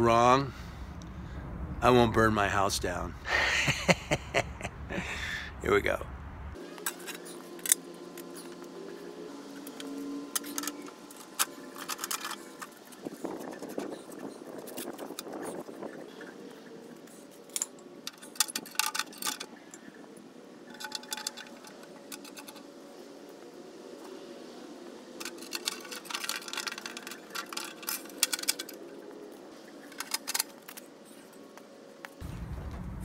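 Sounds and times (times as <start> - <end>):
metal parts clinking and rattling: 6.8 - 8.7, 9.4 - 23.1, 25.1 - 31.5.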